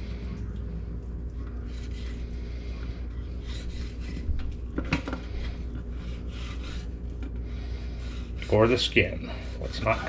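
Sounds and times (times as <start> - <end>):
steady low hum: 0.0 - 10.0
knife scraping along fish bone: 1.7 - 2.4, 3.3 - 4.3, 5.4 - 10.0.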